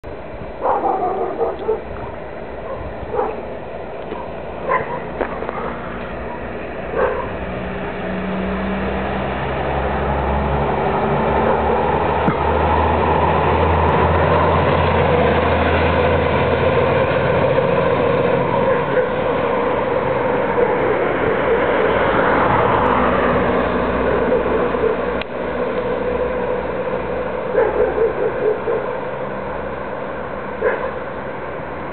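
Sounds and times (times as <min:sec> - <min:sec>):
fire truck driving past: 0:00.2 - 0:31.9
dog barking: 0:00.6 - 0:01.9, 0:02.6 - 0:03.4, 0:04.1 - 0:07.4, 0:18.6 - 0:19.2, 0:24.1 - 0:25.1, 0:27.5 - 0:29.0, 0:30.6 - 0:31.0.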